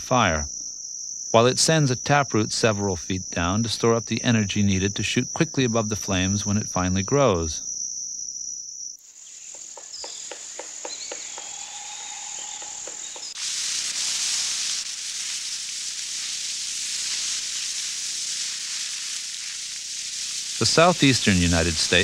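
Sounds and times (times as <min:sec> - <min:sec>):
insects trilling: 0:00.0 - 0:22.0
fire burning hiss: 0:09.0 - 0:22.0
woodpecker tapping on a trunk: 0:09.5 - 0:13.4
bird call: 0:09.8 - 0:13.4.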